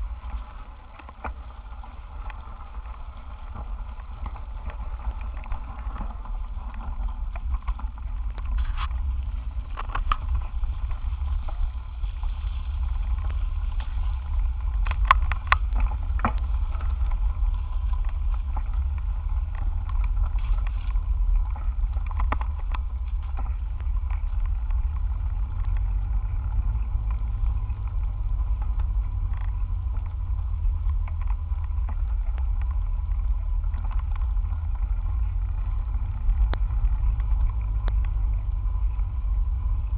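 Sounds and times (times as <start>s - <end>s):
wind rumble: 0.0s - 39.9s
bicycle clicks and knocks: 0.2s - 39.8s.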